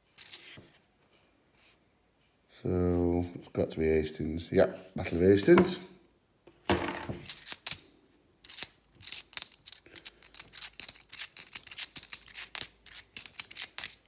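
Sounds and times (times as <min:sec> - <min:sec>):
coins clattering: 0:00.1 - 0:00.6, 0:06.7 - 0:07.8, 0:08.4 - 0:14.0
coins clinking in hand: 0:00.1 - 0:00.6, 0:06.7 - 0:07.8, 0:08.4 - 0:14.0.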